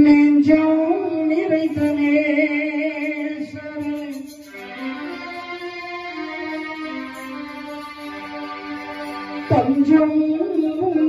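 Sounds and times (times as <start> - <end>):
electronic keyboard melody: 4.4 - 11.0.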